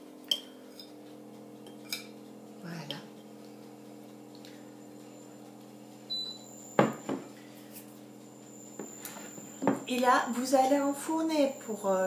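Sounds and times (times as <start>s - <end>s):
steady low hum: 0.0s - 12.0s
glass bowl knocking on surface: 6.8s - 7.3s, 9.6s - 9.9s.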